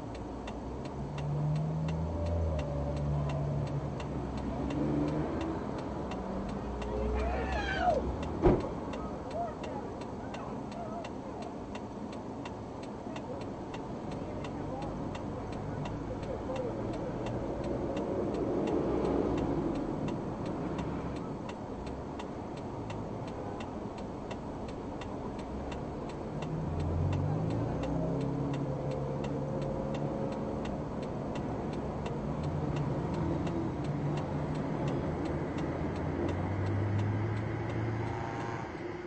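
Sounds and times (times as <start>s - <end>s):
truck engine humming: 0.0s - 38.2s
low rumble of traffic: 0.0s - 39.0s
turn signal ticking: 0.0s - 39.0s.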